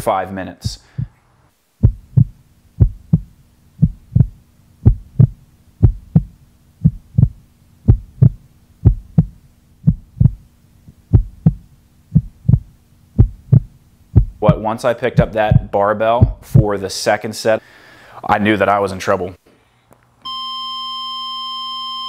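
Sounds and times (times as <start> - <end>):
faint steady hum: 0.0 - 22.0
heartbeat thumps: 0.6 - 1.2, 1.8 - 16.8.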